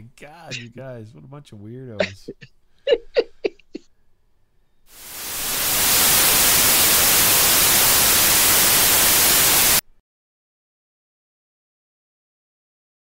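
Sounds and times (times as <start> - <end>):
radio static hiss: 4.9 - 9.8.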